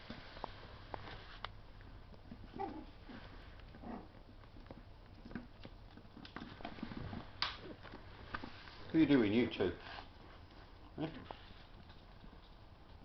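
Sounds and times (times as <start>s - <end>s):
rustle: 0.0s - 13.0s
puppy claws clicking on hard floor: 3.5s - 8.5s.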